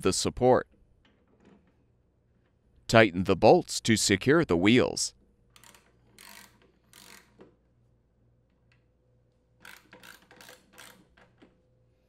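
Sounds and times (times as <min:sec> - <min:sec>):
ratchet wrench clicking: 0:05.5 - 0:07.4, 0:09.6 - 0:11.2.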